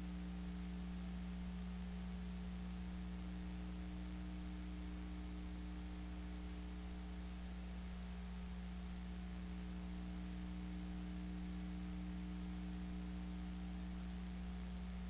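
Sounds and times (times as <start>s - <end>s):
electrical mains hum: 0.0s - 15.0s
tape hiss: 0.0s - 15.0s.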